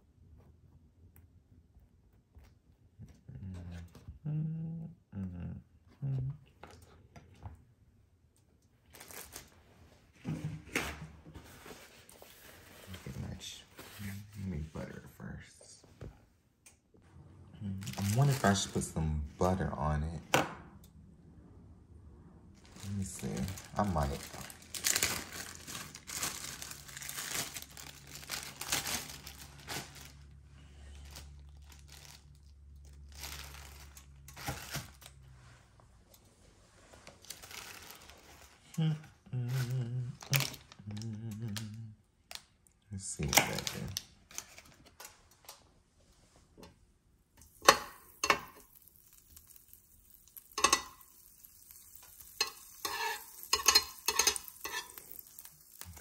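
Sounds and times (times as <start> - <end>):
rustling and scraping of food handling: 8.8 - 15.1, 17.0 - 19.0, 22.6 - 38.7, 43.2 - 46.8, 47.5 - 56.0.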